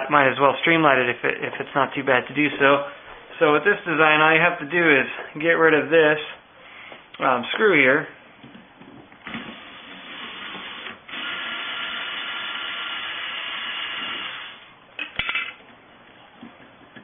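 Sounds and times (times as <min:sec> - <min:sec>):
cordless drill whine: 0:09.3 - 0:14.6.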